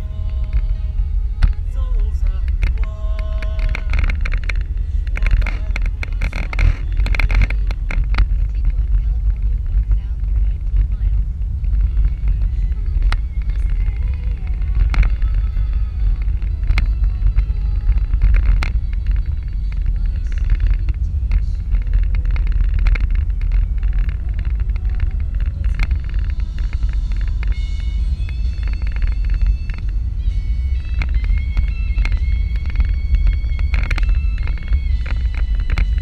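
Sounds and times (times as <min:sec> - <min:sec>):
road and engine rumble: 0:00.0 - 0:36.0
sharp clicks and rattles: 0:00.0 - 0:36.0.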